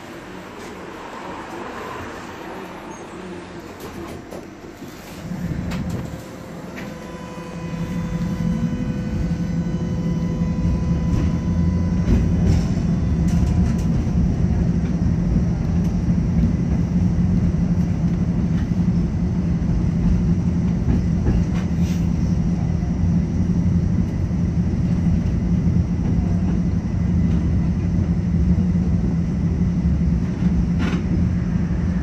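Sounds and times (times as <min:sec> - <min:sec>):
tram wheels rumbling on rail: 0:00.0 - 0:32.0
faint steady whine: 0:05.2 - 0:13.5.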